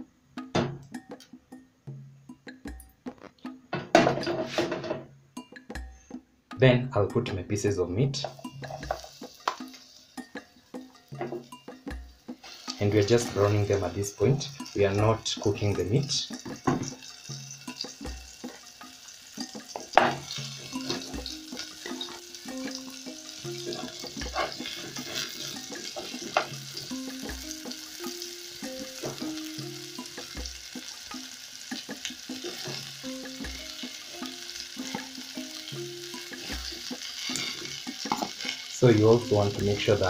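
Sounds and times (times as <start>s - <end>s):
meat sizzling in hot oil: 8.3s - 40.0s.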